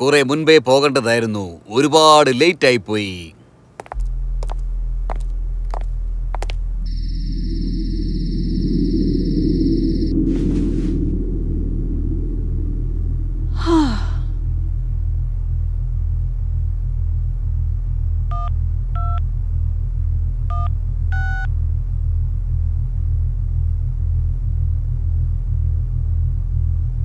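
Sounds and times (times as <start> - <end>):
low pulsing drone: 3.9 - 27.0
woman sighing: 13.4 - 14.4.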